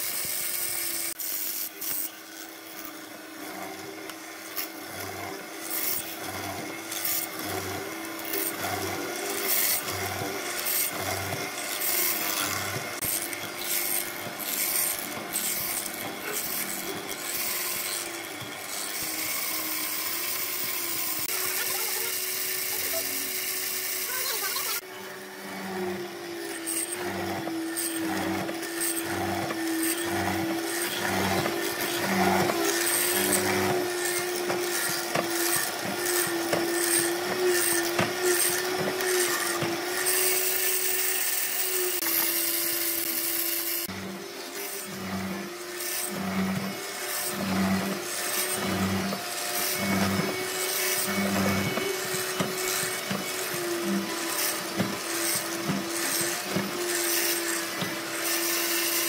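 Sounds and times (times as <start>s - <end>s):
mortiser motor hum: 0.0s - 59.0s
chisel cutting into wood: 25.7s - 44.0s.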